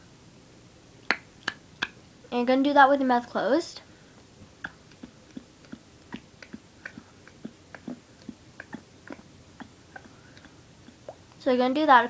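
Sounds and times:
wet mouth clicking and gulping: 1.0 - 2.0, 4.5 - 11.4.

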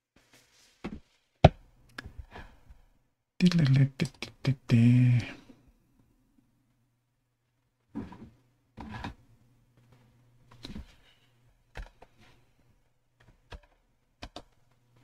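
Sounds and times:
keyboard and mouse clicks: 13.5 - 14.6.

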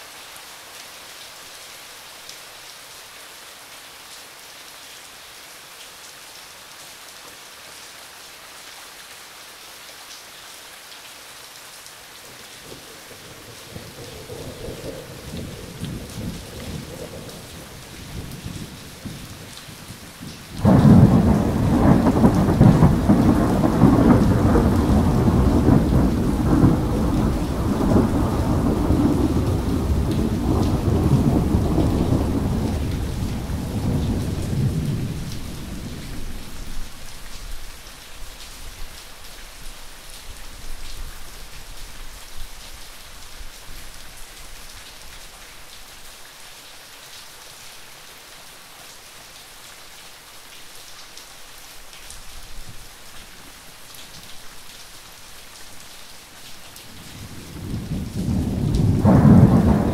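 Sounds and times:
steady rain: 0.0 - 59.9
thunderclap rumbling: 20.6 - 36.4, 57.1 - 59.9.

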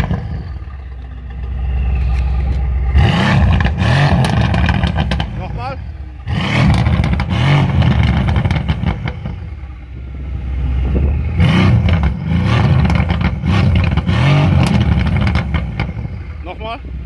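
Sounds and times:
exhaust crackles: 0.0 - 17.0
car engine revving hard: 2.8 - 9.4, 10.5 - 16.1.

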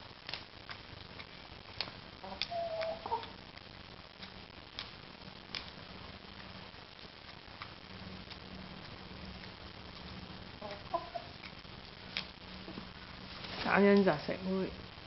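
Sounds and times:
hen clucking: 2.2 - 3.4, 10.6 - 11.4.

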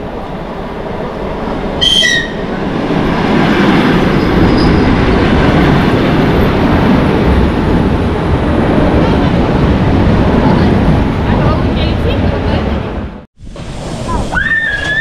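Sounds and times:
electric train rumbling: 0.0 - 15.0
high whistle: 1.8 - 2.4.

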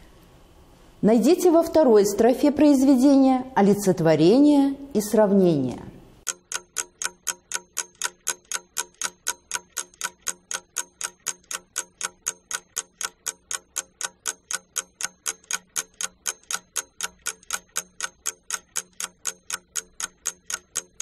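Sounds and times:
clock ticking: 6.2 - 21.0.

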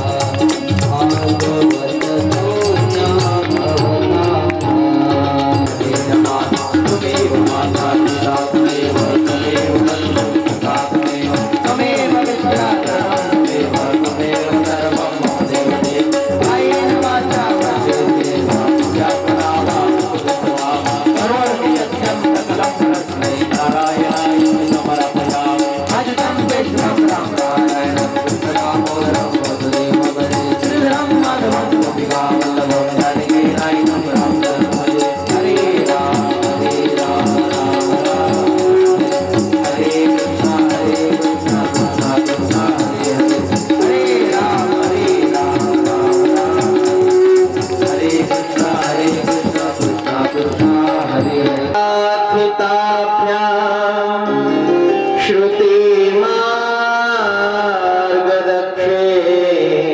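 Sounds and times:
fast percussion beat: 0.0 - 52.3
devotional melody: 0.0 - 59.9.

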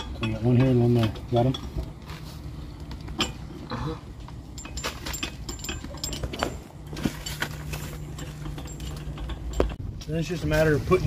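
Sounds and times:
metal clicks and clinks: 0.0 - 1.9, 2.8 - 3.5, 4.3 - 9.8
steady low hum: 0.0 - 11.0.

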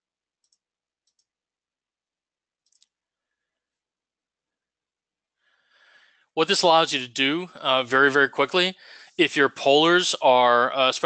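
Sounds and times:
computer mouse clicks: 0.4 - 1.3, 2.6 - 2.9.

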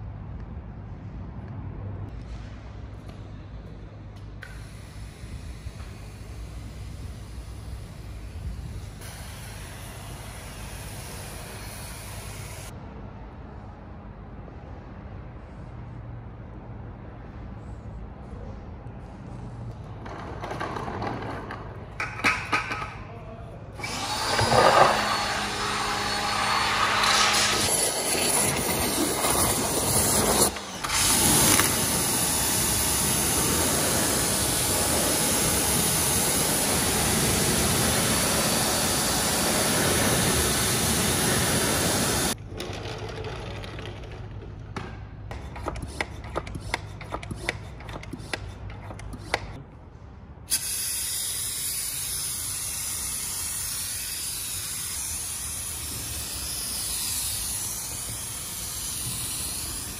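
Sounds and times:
pressure washer spraying: 4.6 - 12.7, 23.8 - 42.4, 50.5 - 59.9
scattered clicks and knocks: 42.4 - 49.6.

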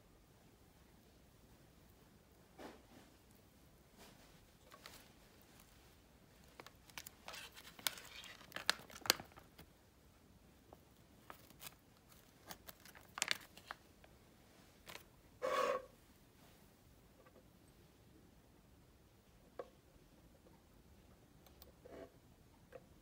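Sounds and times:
foil sachet tearing and crinkling: 6.4 - 9.6, 11.2 - 13.9.

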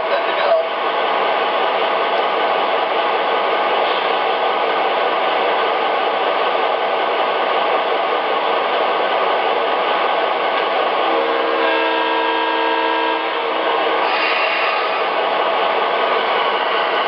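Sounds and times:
model locomotive diesel idle: 10.0 - 17.0.

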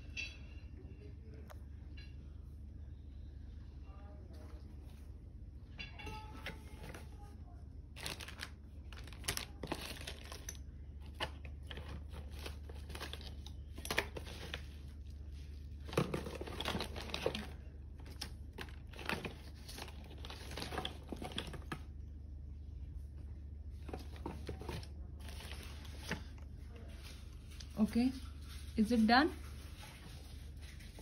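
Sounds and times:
steady low hum: 0.0 - 31.0
crinkling and rustling clicks: 8.0 - 21.9.

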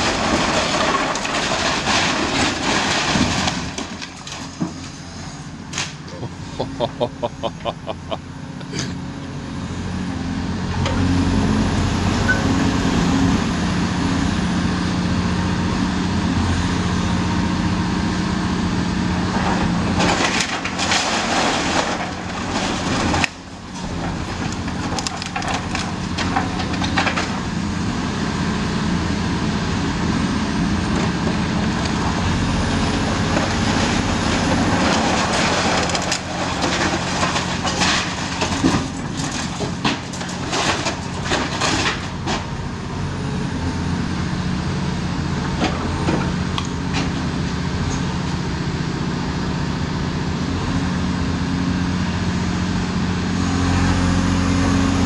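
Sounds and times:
rubble falling: 0.0 - 4.9, 19.5 - 27.5, 32.9 - 42.5
masonry crunching and cracking: 0.0 - 6.4, 19.2 - 28.2, 30.2 - 43.6
excavator diesel engine running: 0.0 - 55.0.

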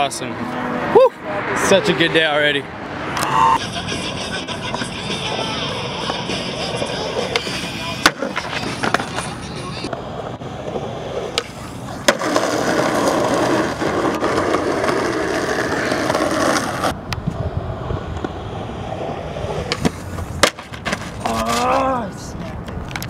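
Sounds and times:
skateboard wheels rolling on asphalt: 3.0 - 23.0
skateboard wooden clacks: 7.2 - 10.0, 10.6 - 16.9, 19.6 - 21.7.

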